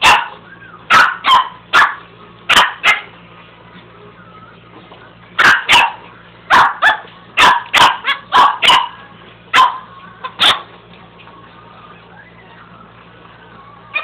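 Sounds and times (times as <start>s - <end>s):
small dog barking: 0.0s - 3.1s, 5.4s - 10.7s.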